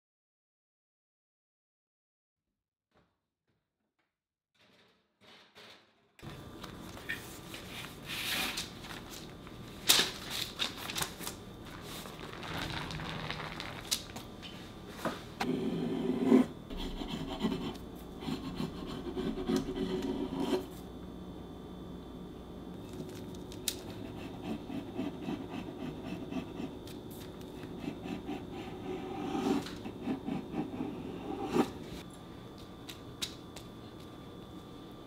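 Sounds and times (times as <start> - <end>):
baking paper rustling: 6.7 - 14.9.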